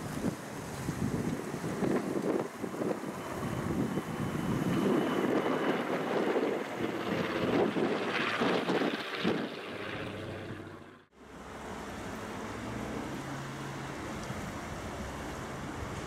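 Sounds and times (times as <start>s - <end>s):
wind gusting on microphone: 0.0s - 11.0s
propeller engines droning: 0.0s - 16.0s.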